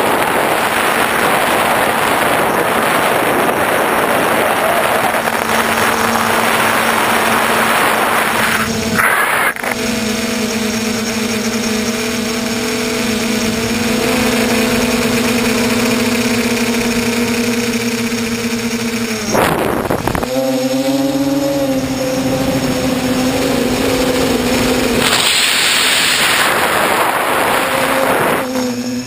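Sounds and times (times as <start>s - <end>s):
drone motors and propellers buzzing: 0.0s - 29.0s
air rushing past: 23.7s - 28.7s.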